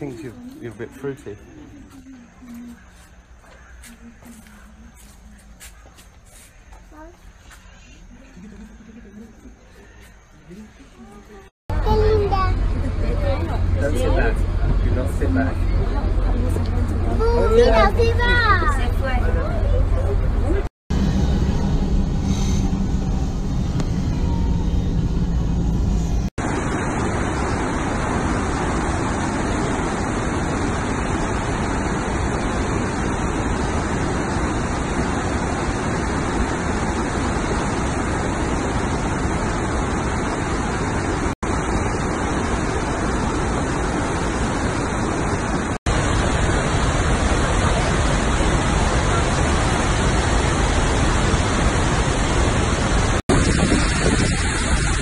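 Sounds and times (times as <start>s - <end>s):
low rumble of wind or traffic: 0.0s - 55.0s
waterfall roaring: 26.4s - 55.0s.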